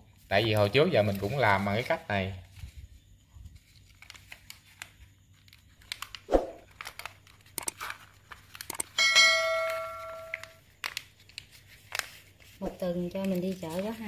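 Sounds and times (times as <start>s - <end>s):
paper rustling and crinkling: 0.2s - 8.7s, 9.6s - 14.0s
bell-like ding: 9.0s - 10.4s.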